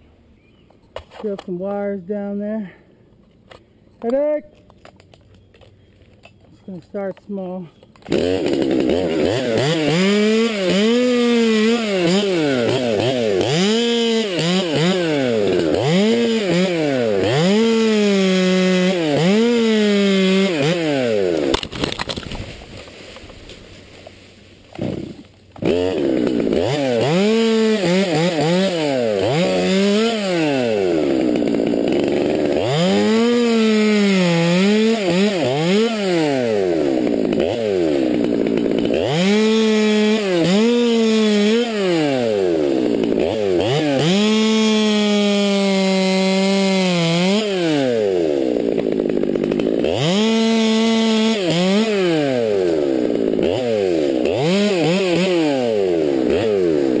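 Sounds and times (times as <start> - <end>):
chainsaw cutting wood: 6.9 - 57.0.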